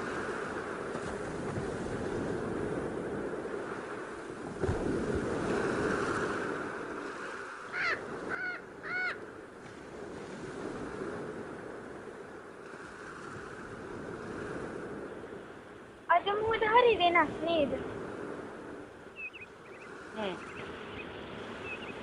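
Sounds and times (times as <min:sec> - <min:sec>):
sea surf washing on shore: 0:00.0 - 0:22.0
bird harsh calls: 0:07.6 - 0:09.2, 0:19.2 - 0:22.0.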